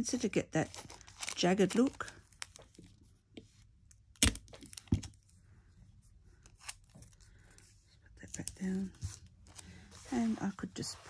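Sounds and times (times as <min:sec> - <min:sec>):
plastic sheet crinkling: 0:00.6 - 0:02.8.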